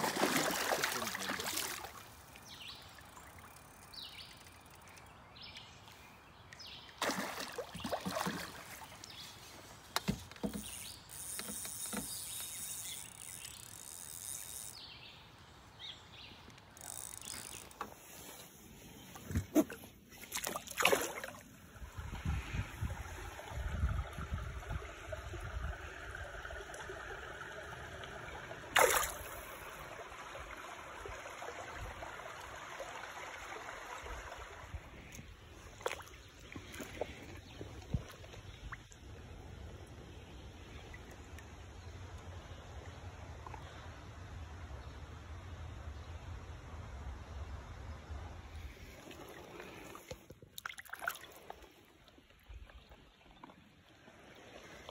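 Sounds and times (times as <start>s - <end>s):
water sloshing and splashing: 0.0s - 2.4s, 6.6s - 13.5s, 16.4s - 40.0s, 48.6s - 54.9s.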